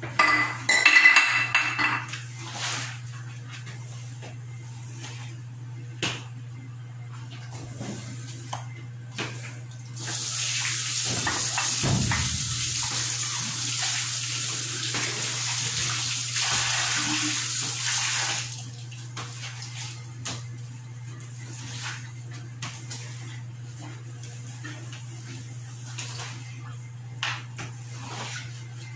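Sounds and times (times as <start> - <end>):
tap water running into sink: 10.0 - 18.9.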